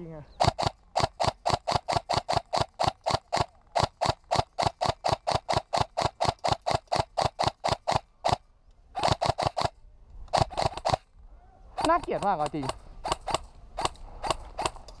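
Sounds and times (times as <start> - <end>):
airsoft rifle rapid shots: 0.4 - 8.4, 9.0 - 11.1, 11.8 - 14.8.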